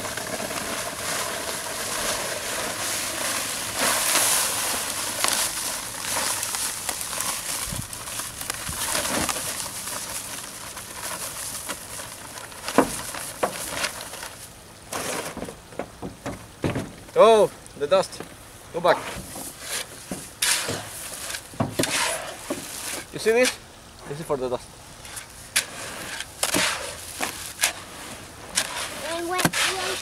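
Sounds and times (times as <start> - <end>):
powder pouring into wheelbarrow: 0.0 - 15.4, 25.6 - 30.0
sharp crackles: 0.0 - 15.5.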